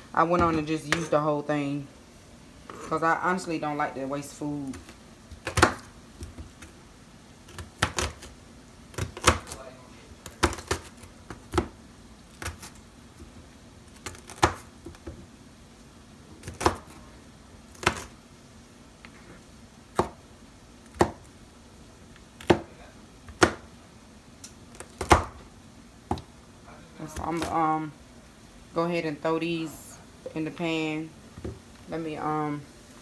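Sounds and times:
knife chopping on plastic board: 5.3 - 6.6, 7.5 - 8.3, 9.0 - 9.6, 10.3 - 12.7, 19.9 - 20.2, 20.9 - 21.3, 23.3 - 23.7, 24.8 - 25.4.

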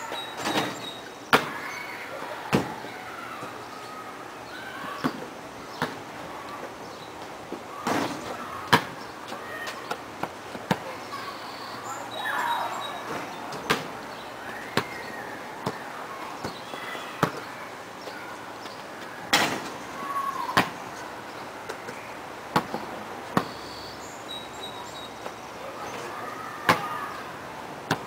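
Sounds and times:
basketball bouncing on dirt: 22.5 - 23.6.

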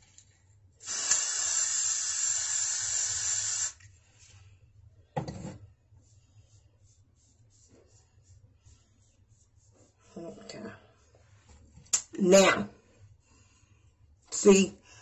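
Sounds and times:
aerosol hairspray hissing: 0.8 - 3.8.

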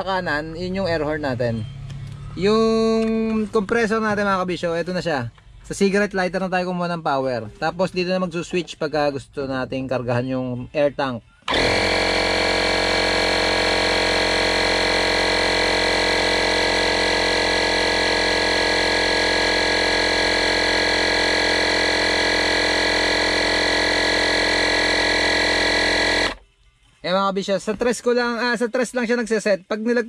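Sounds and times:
air compressor motor humming: 11.4 - 26.4.

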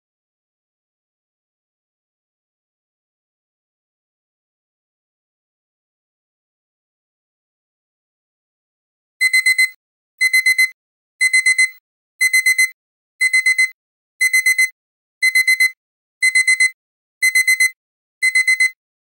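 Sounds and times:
alarm clock beeping: 9.2 - 18.8.

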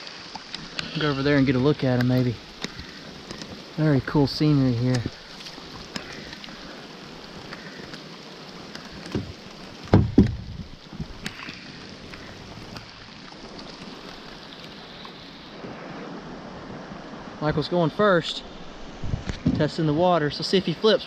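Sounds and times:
rain falling on river: 0.0 - 21.0
loud low knocks: 9.9 - 10.5.

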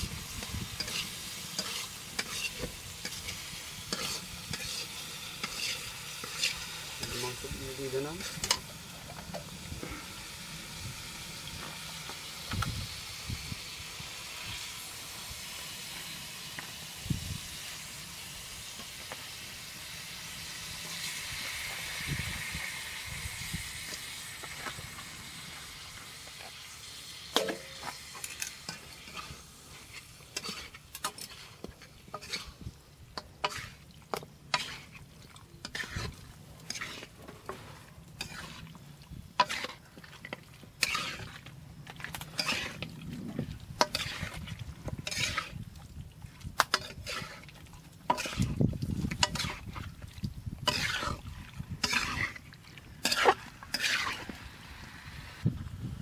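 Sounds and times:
spices sizzling in a pan: 0.0 - 41.4, 42.2 - 42.8, 43.4 - 45.6, 46.6 - 49.8, 50.6 - 51.2, 51.8 - 52.4, 53.0 - 55.4
metal spatula scraping a pan: 0.3 - 8.7, 27.3 - 45.6, 46.6 - 49.8, 50.6 - 54.4.

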